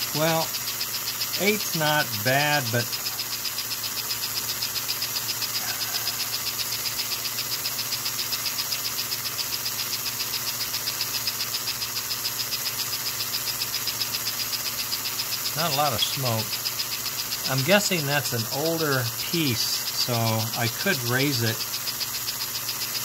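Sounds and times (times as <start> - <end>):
toy train motor whirring: 0.0 - 23.0.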